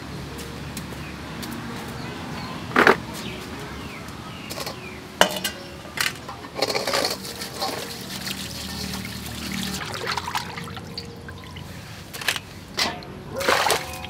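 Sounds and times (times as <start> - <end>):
tap water pouring into metal bowl: 7.0 - 11.1.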